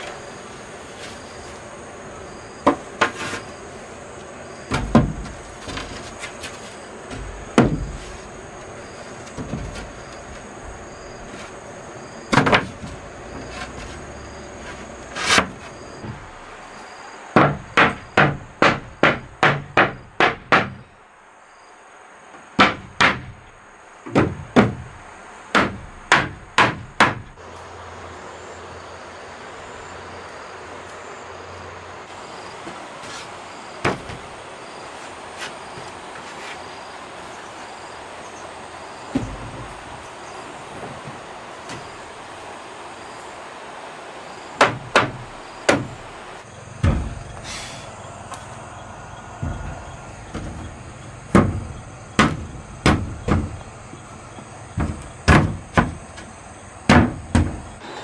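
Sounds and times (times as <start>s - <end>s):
wooden block knocking wall planks: 2.6s - 3.6s, 4.7s - 10.6s, 12.3s - 16.4s, 17.4s - 20.9s, 22.6s - 27.4s, 33.8s - 34.4s, 39.1s - 40.1s, 44.6s - 46.1s, 46.7s - 47.5s, 48.4s - 57.8s.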